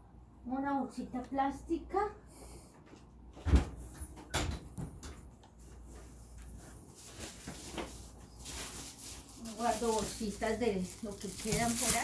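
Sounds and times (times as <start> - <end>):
crinkly hiss: 8.4 - 12.0.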